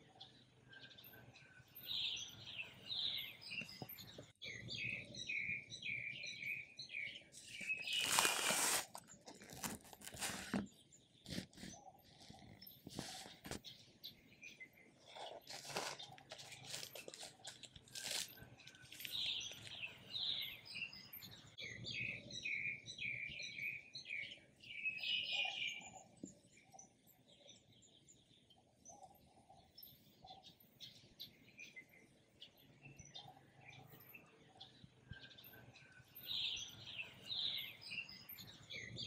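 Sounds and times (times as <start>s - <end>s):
birds chirping: 0.0s - 39.0s
knife sawing crusty bread: 7.7s - 10.6s, 15.1s - 19.1s.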